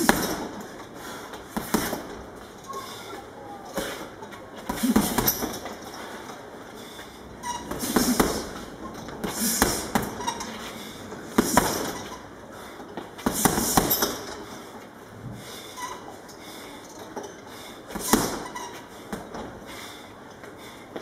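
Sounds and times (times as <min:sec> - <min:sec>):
punches on a heavy bag: 0:00.0 - 0:00.6, 0:04.7 - 0:05.6, 0:11.3 - 0:12.0, 0:13.2 - 0:14.3.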